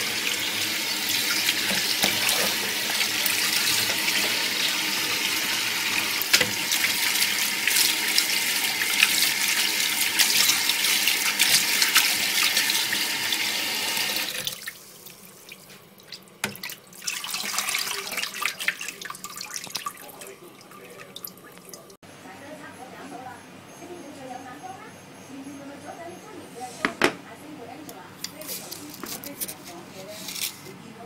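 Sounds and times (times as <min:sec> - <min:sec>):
water dripping: 0:14.0 - 0:22.0
tap water splashing into bowl: 0:16.1 - 0:21.8.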